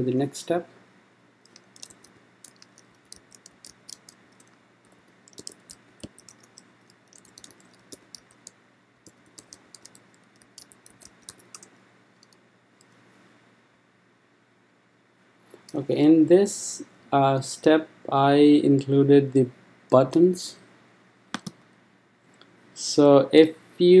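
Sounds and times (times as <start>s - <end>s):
keyboard keys clicking: 1.4s - 12.4s, 21.4s - 21.6s.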